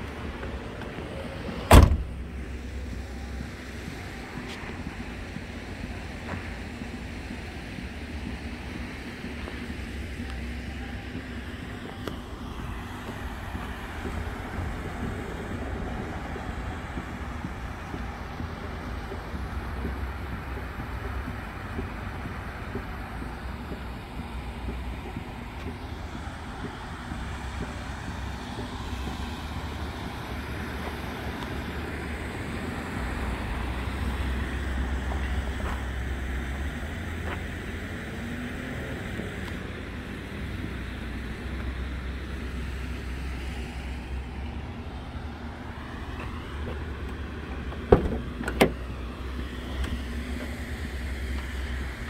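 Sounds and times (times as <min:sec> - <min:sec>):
low outdoor rumble: 0:00.0 - 0:52.0
car door latch clicks: 0:01.6 - 0:02.2, 0:47.9 - 0:48.8.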